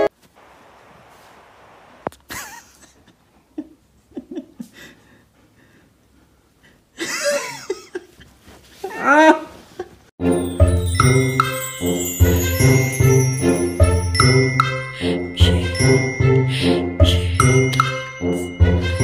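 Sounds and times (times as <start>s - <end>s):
person laughing: 2.2s - 4.9s, 7.0s - 8.2s, 8.8s - 10.0s
music with jingle bells: 10.2s - 19.0s.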